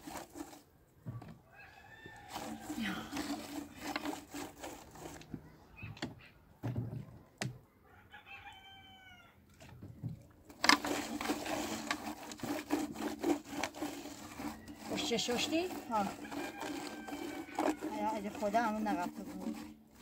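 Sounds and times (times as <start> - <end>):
hands scrubbing wet metal tray: 0.0 - 0.6, 2.2 - 5.3, 10.5 - 20.0
rooster crowing: 1.4 - 2.6, 7.8 - 9.4, 16.2 - 17.8.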